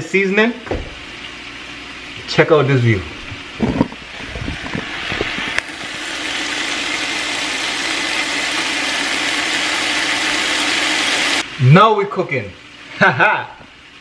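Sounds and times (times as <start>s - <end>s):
soft knocks: 0.6s - 1.1s
vegetables sizzling in oil: 1.0s - 14.0s.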